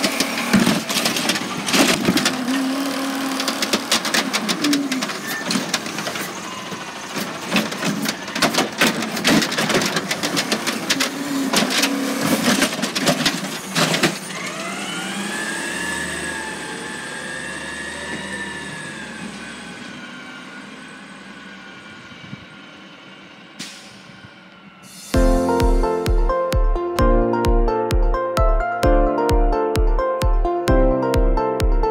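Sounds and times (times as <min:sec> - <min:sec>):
trash clattering into truck: 0:00.0 - 0:14.4
truck engine whine: 0:00.0 - 0:26.5.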